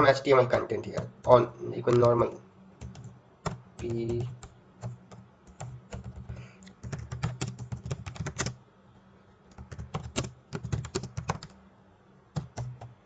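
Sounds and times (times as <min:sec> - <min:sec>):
typing on computer keyboard: 0:02.8 - 0:08.6, 0:09.5 - 0:11.6, 0:12.4 - 0:13.0.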